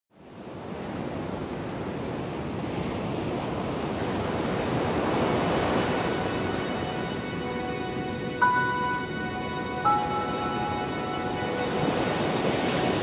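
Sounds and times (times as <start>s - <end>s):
sea waves: 0.3s - 13.0s
faint music tones: 5.0s - 13.0s.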